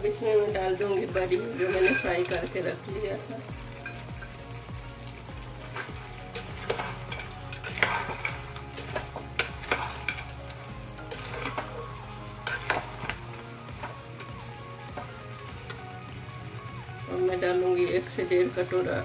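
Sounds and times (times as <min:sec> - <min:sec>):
food sizzling: 0:00.0 - 0:19.0
metal spatula scraping pot: 0:01.4 - 0:02.6, 0:05.6 - 0:15.2.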